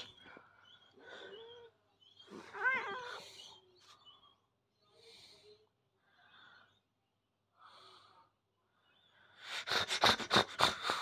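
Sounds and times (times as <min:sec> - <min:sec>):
cat hissing: 0:09.4 - 0:11.0.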